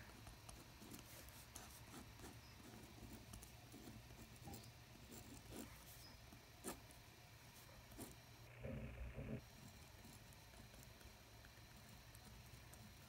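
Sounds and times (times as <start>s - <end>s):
pen scratching on paper: 0.0s - 7.0s, 7.6s - 8.2s.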